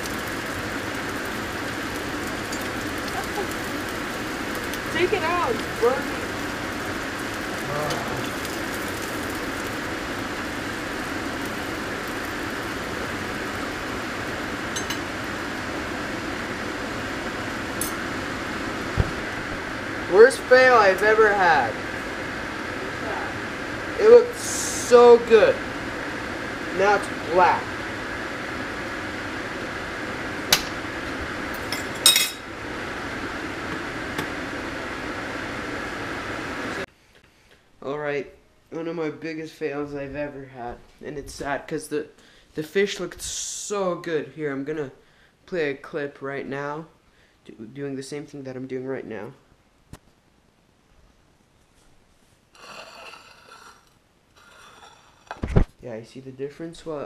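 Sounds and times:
oil sizzling in a frying pan: 0.0s - 36.9s
steady fan noise: 0.0s - 57.0s.

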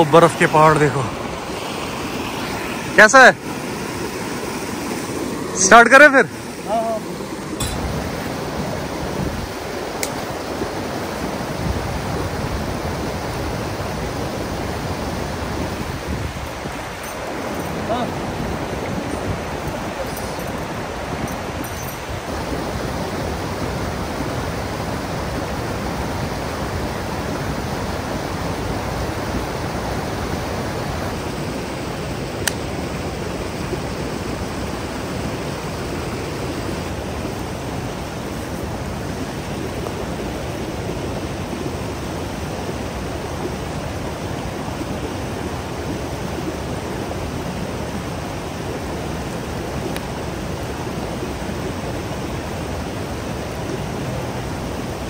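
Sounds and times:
steady outdoor rushing noise: 0.0s - 43.2s.

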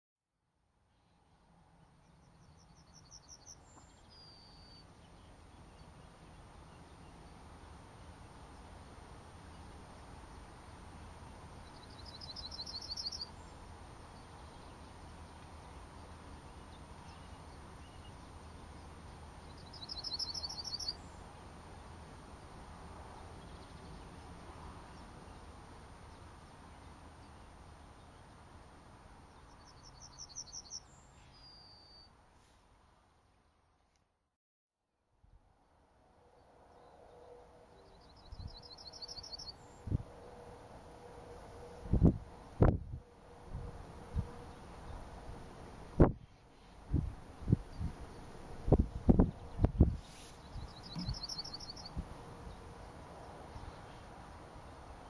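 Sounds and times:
yellowhammer singing: 2.1s - 21.3s, 29.3s - 32.1s, 37.7s - 40.0s, 49.2s - 54.2s.

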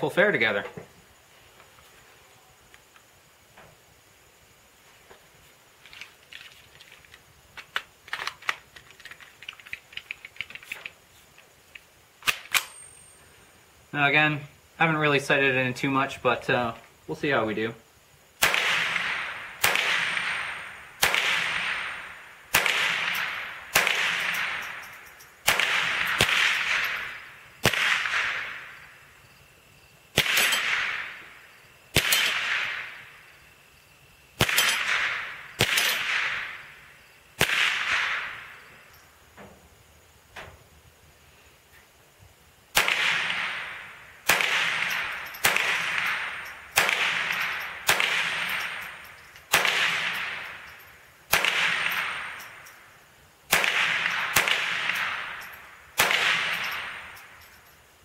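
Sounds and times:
rifle shots with echo: 18.4s - 24.8s, 25.4s - 28.8s, 30.2s - 31.3s, 32.0s - 33.1s, 34.4s - 36.7s, 37.4s - 38.7s, 42.8s - 50.6s, 51.3s - 52.6s, 53.5s - 57.2s.

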